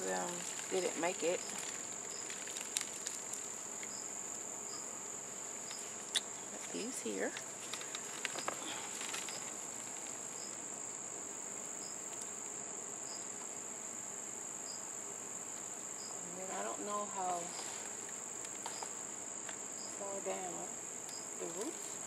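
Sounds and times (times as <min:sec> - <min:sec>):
insects trilling: 0:00.0 - 0:22.0
short insect chirp: 0:00.3 - 0:16.3, 0:20.9 - 0:22.0.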